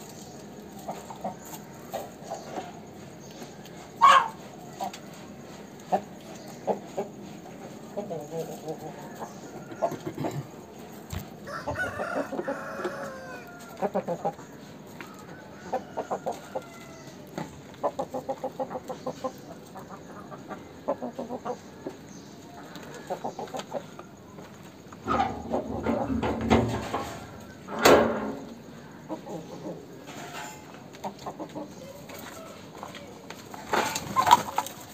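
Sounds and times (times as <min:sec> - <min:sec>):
rooster clucks: 0:00.8 - 0:22.0, 0:24.8 - 0:34.9
rooster crowing: 0:11.4 - 0:13.9, 0:15.0 - 0:17.2, 0:31.8 - 0:33.2.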